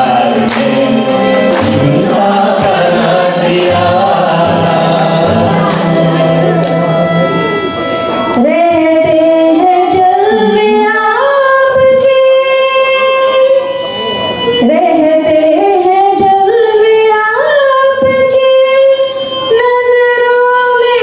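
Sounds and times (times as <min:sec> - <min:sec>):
devotional song with voices: 0:00.0 - 0:14.0
keyboard: 0:00.0 - 0:21.0.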